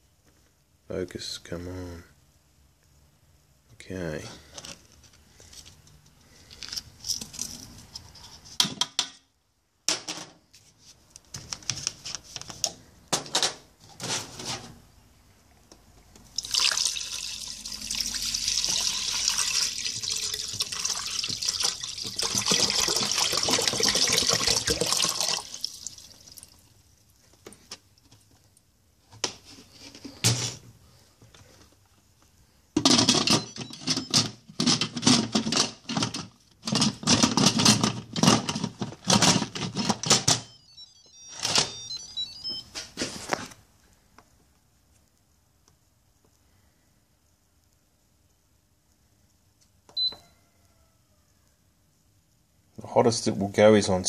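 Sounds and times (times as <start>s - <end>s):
water pouring into a pot: 16.4s - 26.7s.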